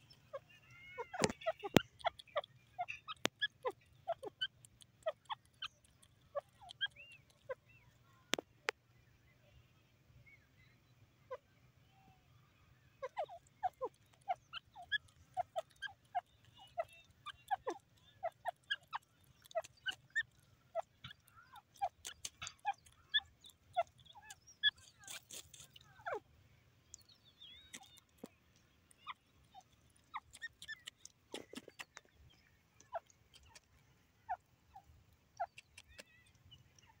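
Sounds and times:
sharp clicks: 35.4 - 36.9.

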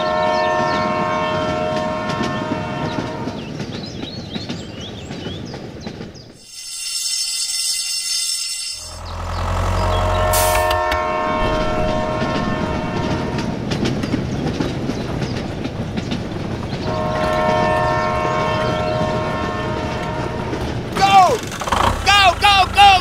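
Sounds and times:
multi-tone train horn: 0.0 - 3.4, 6.6 - 13.7, 16.8 - 21.4.

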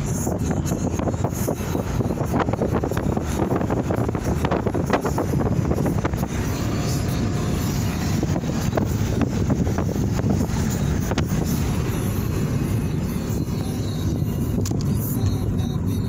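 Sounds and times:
car road and wind noise: 0.0 - 16.0.

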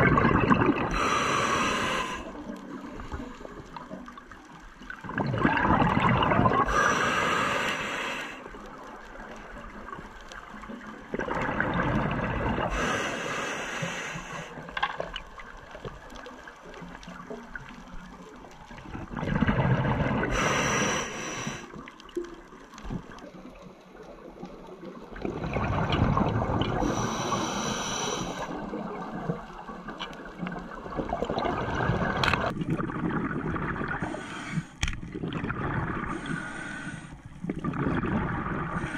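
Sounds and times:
gurgling exhaled bubbles: 0.0 - 7.6, 8.4 - 12.9, 14.6 - 34.3, 35.0 - 38.9
regulator inhale hiss: 0.9 - 3.5, 6.6 - 8.6, 12.7 - 14.6, 20.3 - 21.8, 26.8 - 28.7, 34.0 - 34.8, 36.1 - 37.3.

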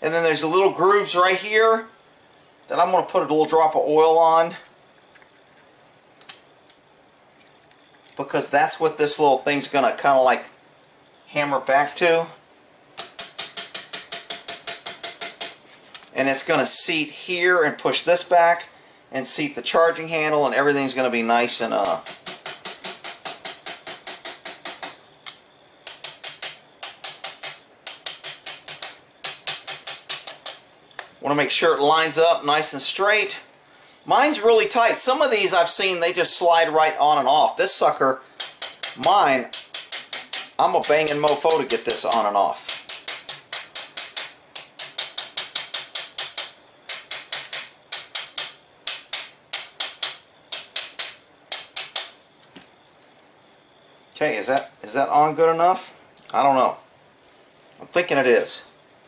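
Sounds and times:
mallet tapping metal: 13.0 - 15.6.

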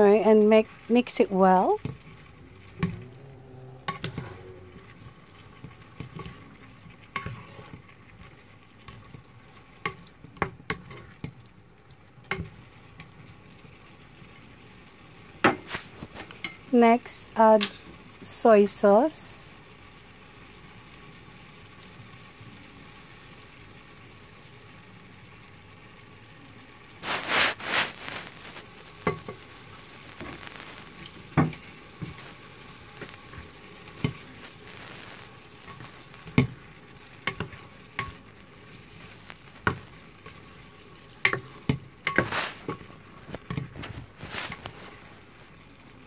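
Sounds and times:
food sizzling hiss: 0.0 - 46.0
spatula scraping a metal pan: 2.7 - 5.1, 7.1 - 7.9, 41.2 - 44.9.

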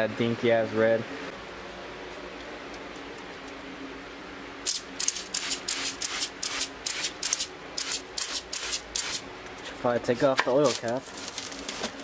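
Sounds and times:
electric fan humming: 0.0 - 12.0
aerosol can spraying bursts: 4.6 - 9.2.

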